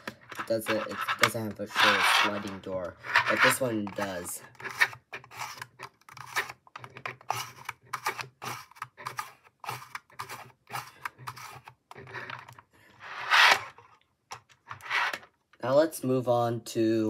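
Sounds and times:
plastic sliding door scraping: 0.5s - 3.7s.

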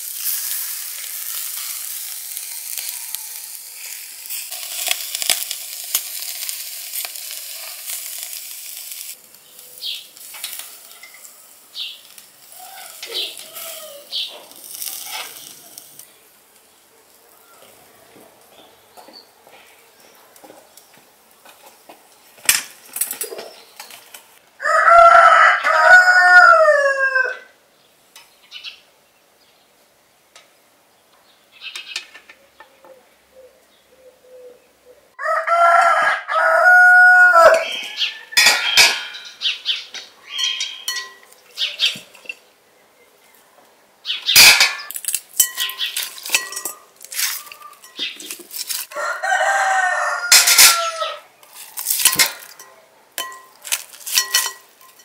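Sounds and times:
rooster crowing: 2.4s - 3.7s, 12.5s - 14.2s, 24.6s - 27.6s, 35.2s - 38.8s, 48.9s - 51.3s
metal skewers clinking on glass: 10.3s - 11.4s, 40.3s - 41.4s, 44.4s - 48.8s, 51.8s - 55.0s.

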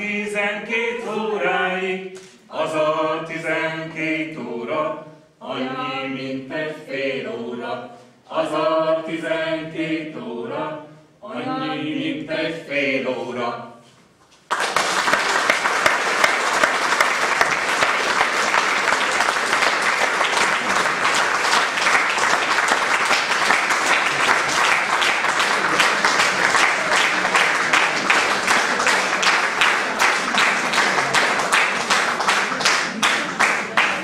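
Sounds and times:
audience applauding: 14.5s - 34.0s.

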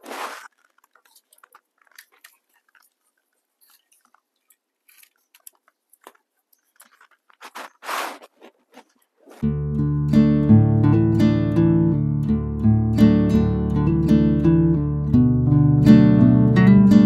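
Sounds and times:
rice stirring scraping rustle: 0.0s - 4.1s, 7.3s - 9.4s.

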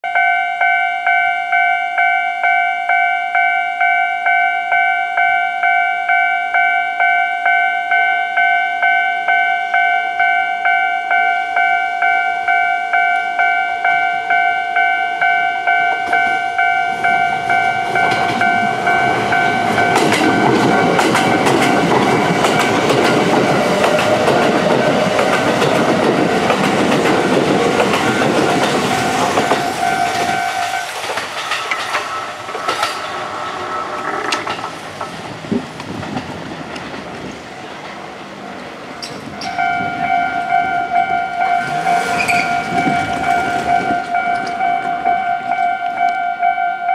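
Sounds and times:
level crossing bell ringing: 0.0s - 26.6s, 28.0s - 31.1s, 39.4s - 46.9s
electric train passing: 0.2s - 46.9s
train wheels clattering: 16.0s - 45.7s.

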